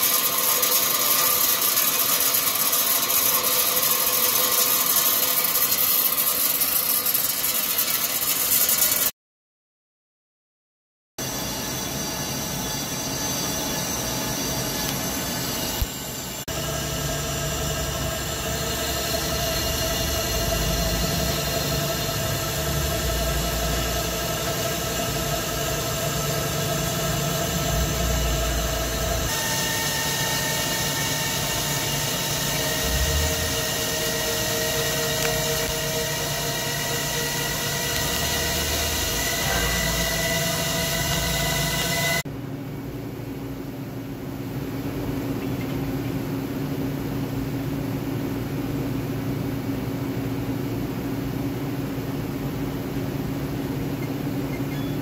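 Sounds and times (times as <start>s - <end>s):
lathe cutting metal: 0.0s - 9.1s, 11.2s - 42.2s
high whining tones: 11.2s - 42.2s.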